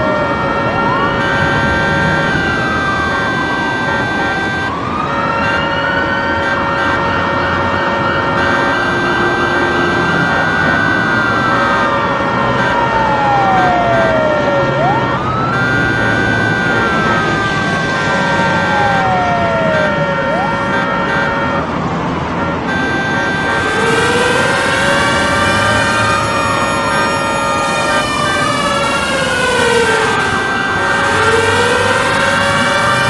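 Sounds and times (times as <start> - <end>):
city traffic noise: 0.0 - 33.0
siren wailing: 0.0 - 33.0
steady held tones: 5.4 - 28.8.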